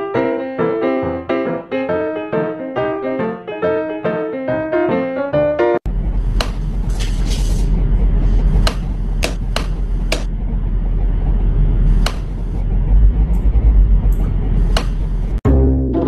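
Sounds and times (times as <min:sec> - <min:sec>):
sharp clicks and knocks: 0:08.6 - 0:10.3, 0:12.0 - 0:12.6.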